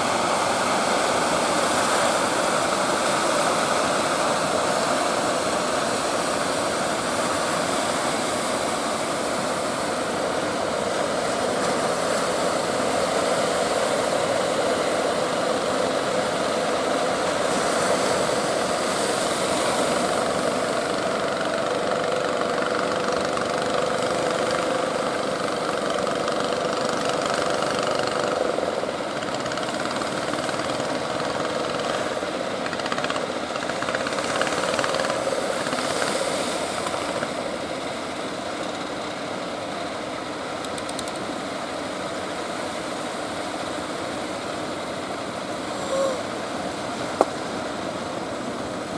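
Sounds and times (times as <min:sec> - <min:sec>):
motorboat engine running: 0:00.0 - 0:48.9
surf rushing: 0:00.0 - 0:48.9.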